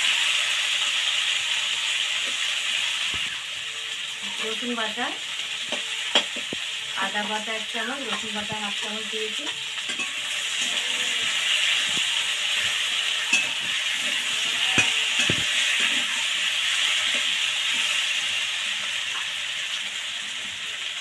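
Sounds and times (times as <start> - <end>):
potatoes sizzling in oil: 0.0 - 21.0
metal spatula scraping pan: 9.5 - 19.2.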